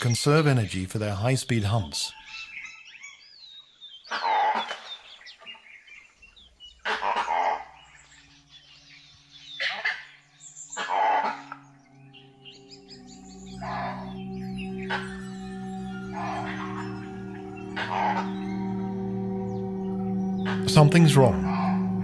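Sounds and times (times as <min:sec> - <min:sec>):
harsh bark-like animal calls: 0:04.1 - 0:05.1, 0:06.7 - 0:08.5, 0:09.6 - 0:22.0
low musical drone: 0:07.0 - 0:22.0.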